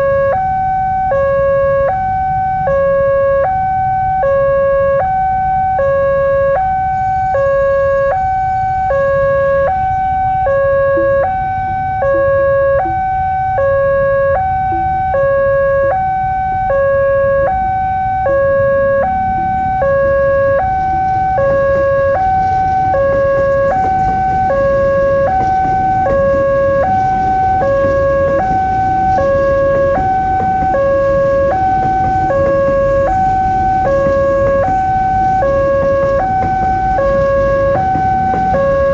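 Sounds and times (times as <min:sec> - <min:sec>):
level crossing alarm: 0:00.0 - 0:38.9
train passing: 0:17.6 - 0:38.9.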